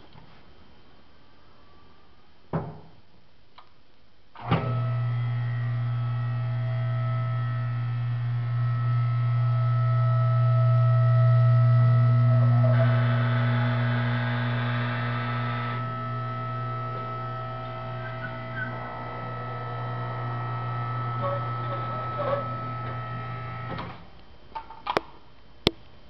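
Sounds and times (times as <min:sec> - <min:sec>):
hydraulic pump motor humming: 0:04.5 - 0:24.0.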